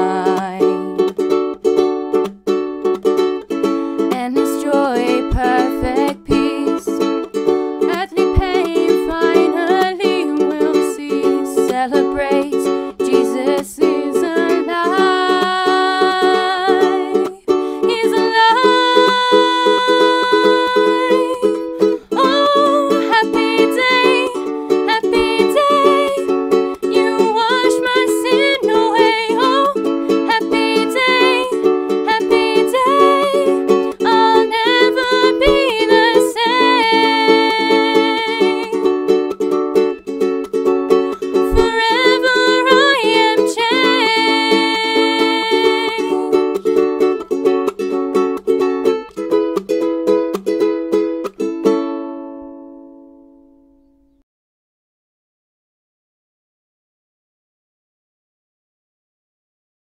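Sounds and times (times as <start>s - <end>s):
young women singing: 0.0s - 1.0s, 4.1s - 7.0s, 7.9s - 38.8s, 41.4s - 46.4s
ukulele strumming chords: 0.0s - 54.2s.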